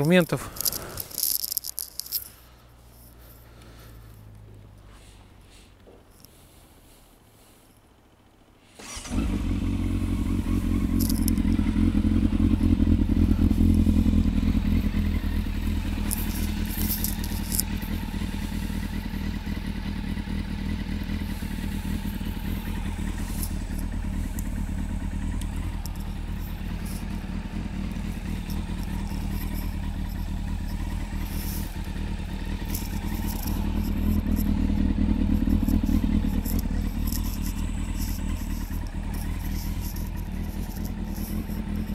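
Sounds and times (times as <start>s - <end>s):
motorcycle engine idling: 0.0s - 41.9s.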